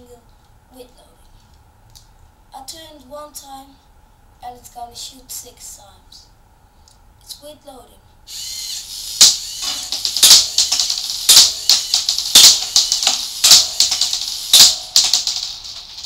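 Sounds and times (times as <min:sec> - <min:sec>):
electric motors and gears whirring: 0:08.3 - 0:16.0.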